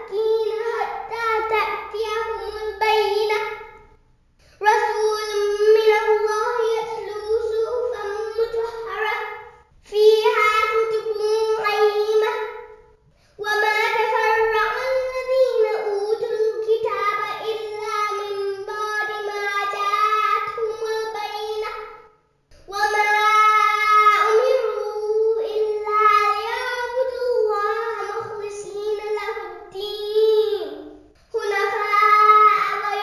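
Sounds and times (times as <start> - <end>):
child chanting melodically: 0.0 - 4.0, 4.6 - 33.0.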